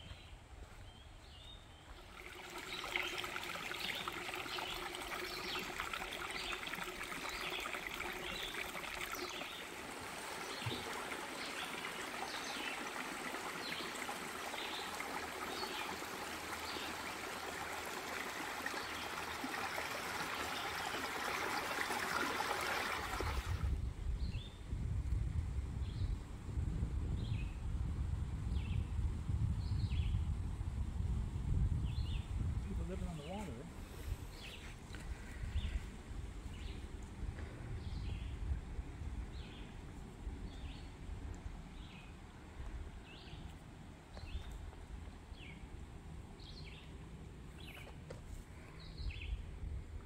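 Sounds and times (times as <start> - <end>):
brook trickling over stones: 1.8 - 23.8, 40.5 - 49.3.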